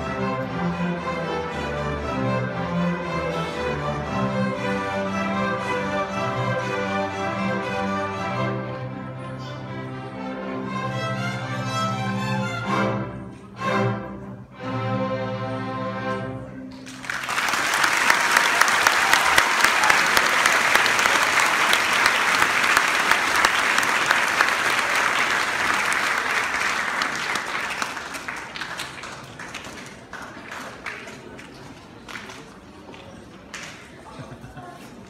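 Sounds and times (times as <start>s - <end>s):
string orchestra chords: 0.0s - 17.0s
audience applause: 16.7s - 34.4s.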